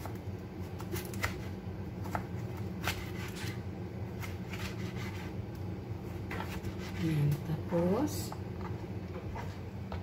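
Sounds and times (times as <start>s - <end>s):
steady low hum: 0.0s - 10.0s
knife cutting on cutting board: 0.8s - 3.6s, 4.2s - 5.4s, 6.3s - 7.1s.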